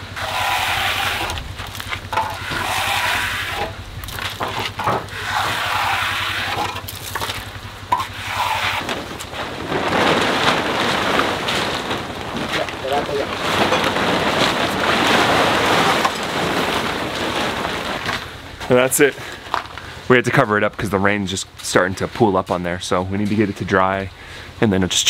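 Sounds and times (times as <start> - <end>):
trowel scraping wet concrete: 0.0 - 9.4
plastic tarp rustling: 0.0 - 24.0.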